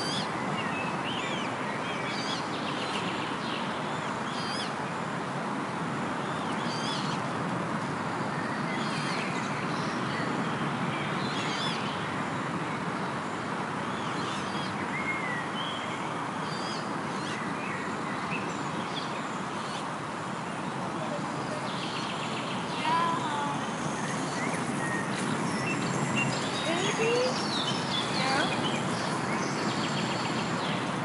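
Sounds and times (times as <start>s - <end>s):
songbirds singing: 0.0s - 4.8s, 6.2s - 31.0s
steady rushing background noise: 11.9s - 31.0s.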